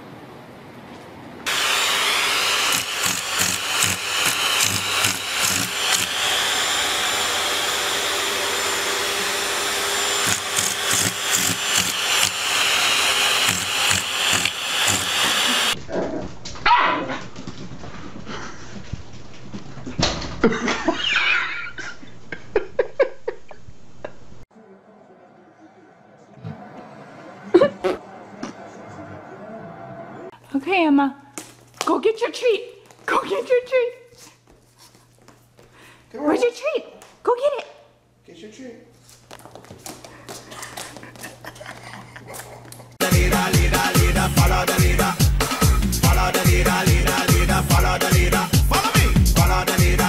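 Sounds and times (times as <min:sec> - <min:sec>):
appliance motor rushing hiss and whine: 0:01.5 - 0:15.8.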